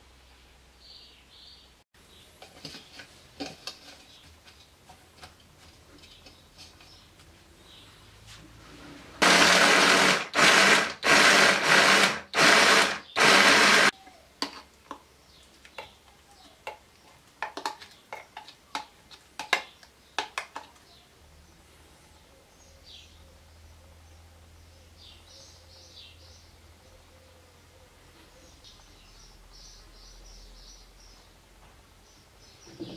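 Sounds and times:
electric food chopper pulsing: 9.2s - 13.9s.

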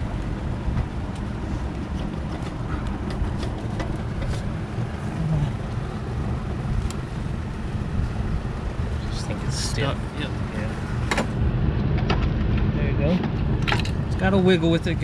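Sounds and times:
low rumble: 0.0s - 15.0s
metal parts clicking and knocking: 13.6s - 14.0s.

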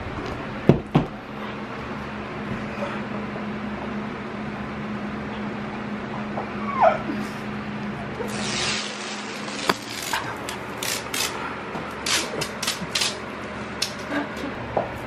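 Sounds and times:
tape rubbing and crackling: 8.3s - 11.4s, 12.0s - 13.2s.

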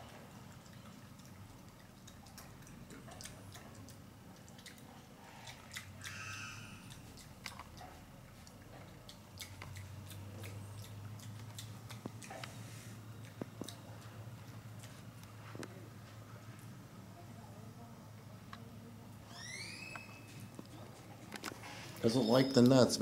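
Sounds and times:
animal nibbling food: 0.1s - 15.8s
high animal squeak: 6.0s - 7.0s, 19.2s - 20.5s.

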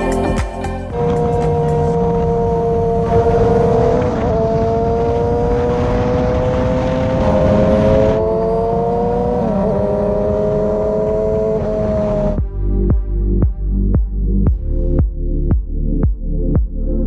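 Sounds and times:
wind and road noise: 0.0s - 14.6s
motorcycle engine at high revs: 0.9s - 12.4s.

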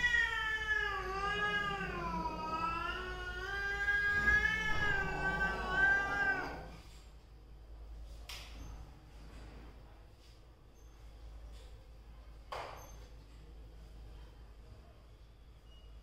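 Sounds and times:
cat yowling: 0.0s - 6.8s.

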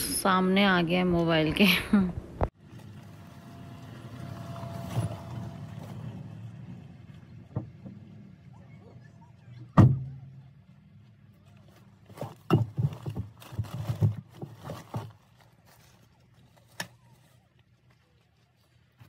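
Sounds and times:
bags knocking in car trunk: 12.1s - 15.2s.

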